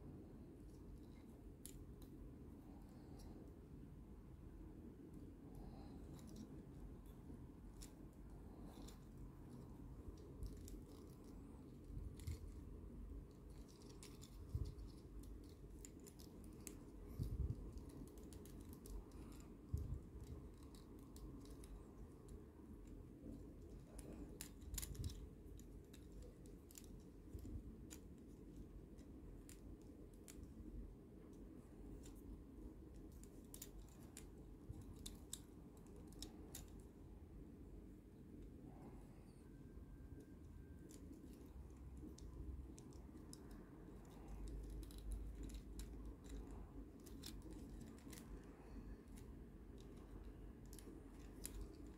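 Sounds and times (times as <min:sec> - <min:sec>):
plastic toy parts clicking: 0:08.6 - 0:30.8, 0:40.8 - 0:51.9.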